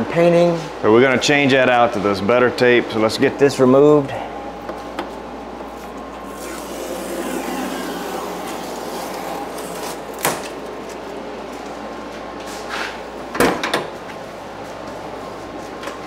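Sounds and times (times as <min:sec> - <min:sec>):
masking tape peeling: 0:06.3 - 0:11.0.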